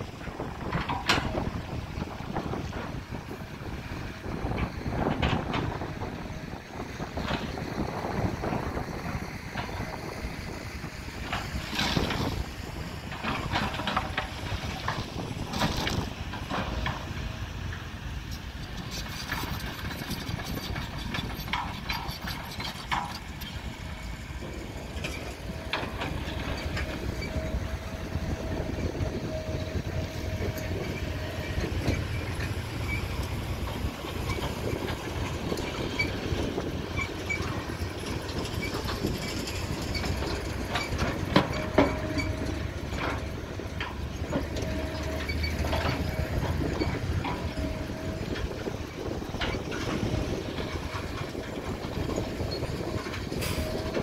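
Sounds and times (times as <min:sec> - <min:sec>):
excavator diesel engine running: 0:00.0 - 0:54.0
knocks and clatters: 0:18.7 - 0:23.7, 0:31.8 - 0:48.4.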